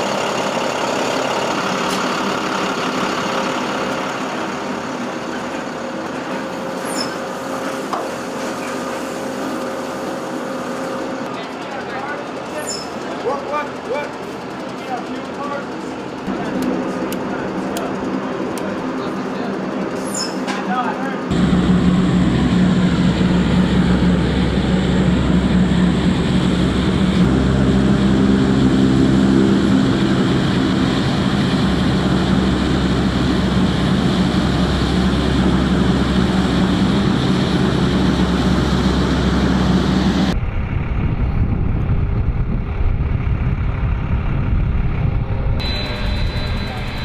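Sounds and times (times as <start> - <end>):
aircraft and vehicle engines: 0.0 - 47.0
low hum: 21.3 - 47.0.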